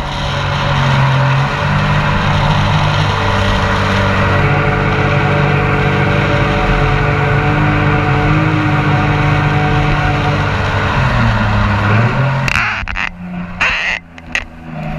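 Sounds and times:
rushing noise bursts: 0.0 - 7.3
boat engine running: 0.0 - 14.9.

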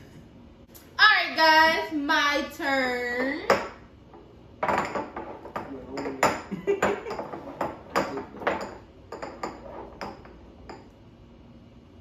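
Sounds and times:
glass jars clinking: 4.6 - 10.9
glass jars sliding on wood: 7.1 - 10.3.

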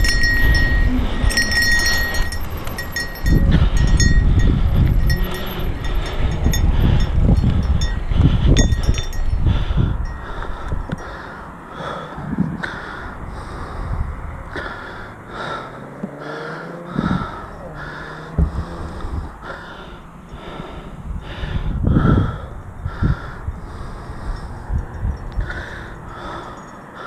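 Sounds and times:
bike knocking and rattling: 0.0 - 9.5
bike tyres on dirt: 0.0 - 11.2
rider breathing hard: 0.0 - 27.0
wind buffeting microphone: 0.0 - 27.0.

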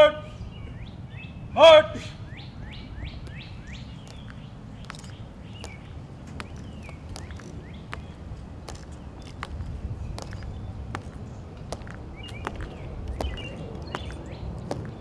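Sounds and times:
bird chirping: 0.0 - 15.0
metal-tapped heels clicking on stone: 3.1 - 15.0.

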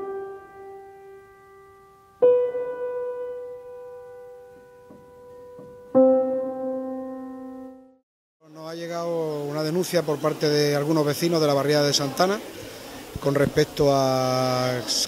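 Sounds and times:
slow piano notes ringing: 0.0 - 8.0.

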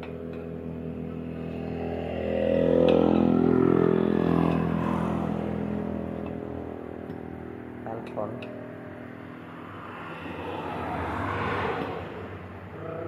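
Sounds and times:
vehicle engine passing: 0.0 - 13.0.

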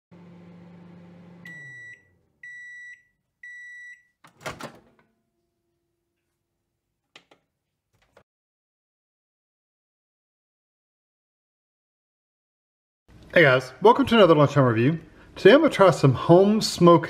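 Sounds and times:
microwave oven humming: 0.1 - 2.8
microwave beeps: 1.2 - 4.2.

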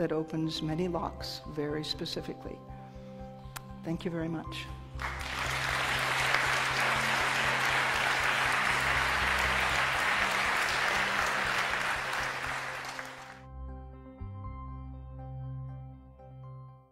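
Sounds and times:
soft background music: 0.0 - 16.9
audience applauding: 5.0 - 13.4.

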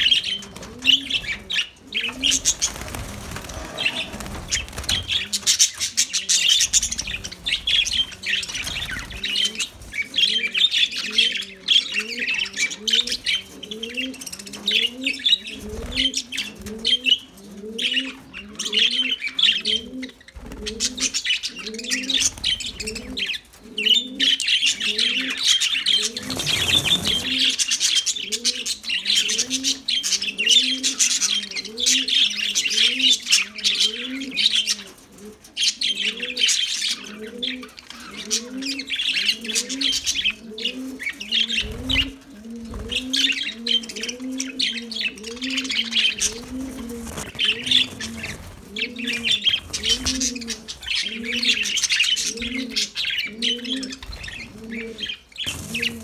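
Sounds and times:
low cooing call: 3.1 - 5.5, 36.0 - 56.0
budgerigars chattering: 42.9 - 56.0.

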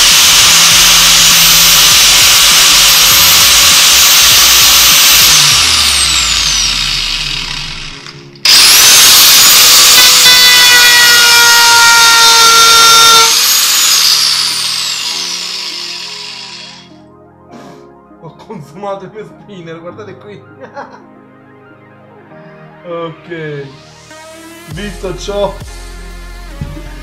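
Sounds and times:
angle grinder whine: 0.0 - 17.0.

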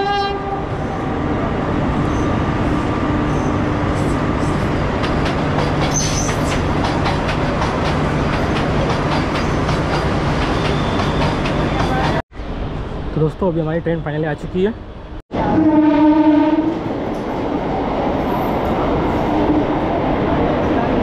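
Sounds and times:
train rumbling: 0.0 - 21.0
high wheel squeal: 10.6 - 11.8.

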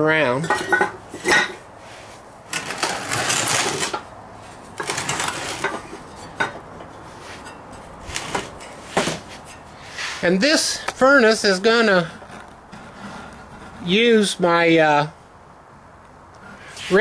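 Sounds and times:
heavy furnace scraping and grinding: 0.0 - 14.8, 16.4 - 17.0
metal and brick clunks: 0.4 - 1.6, 4.8 - 9.6.

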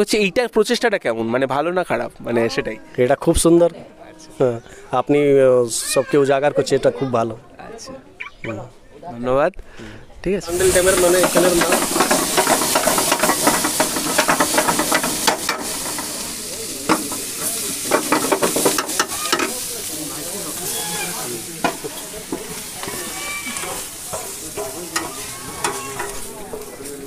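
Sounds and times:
food sizzling in hot oil: 10.5 - 27.0
metal ladle scraping pan: 10.5 - 27.0.

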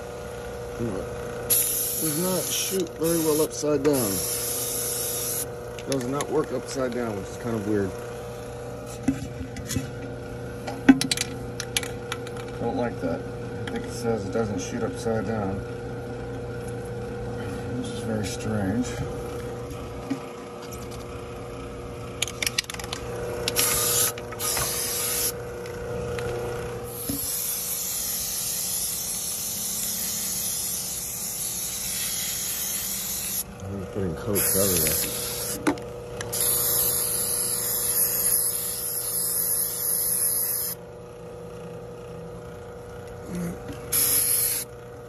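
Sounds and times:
aerosol can spraying: 1.5 - 5.5, 23.5 - 25.4, 26.9 - 33.4, 34.4 - 40.8, 43.9 - 44.7.

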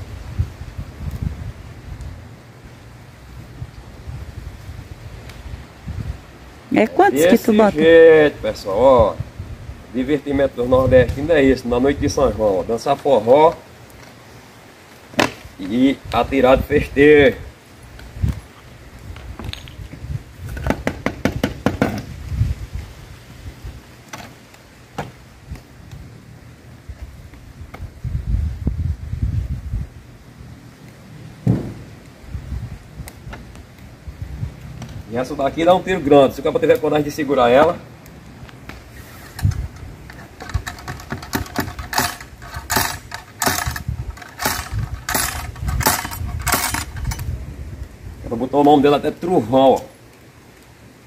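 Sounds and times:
wind rumble on microphone: 0.0 - 12.7, 15.4 - 24.0, 25.0 - 36.4, 37.7 - 48.6
dull thump: 31.4 - 31.9
metal ramrod clinking in barrel: 39.3 - 47.3.

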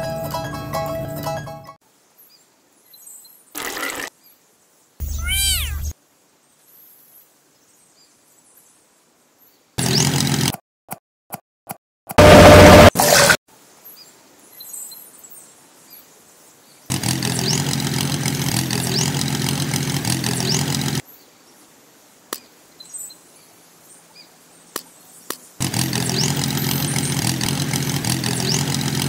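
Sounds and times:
faint bird chirps: 4.2 - 8.8
tractor engine running: 9.8 - 10.5, 16.9 - 21.0, 25.6 - 29.0.

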